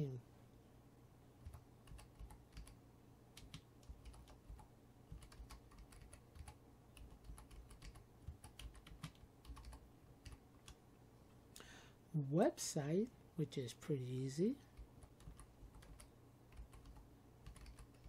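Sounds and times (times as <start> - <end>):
typing on computer keyboard: 1.4 - 2.8, 3.4 - 10.8, 14.7 - 18.0.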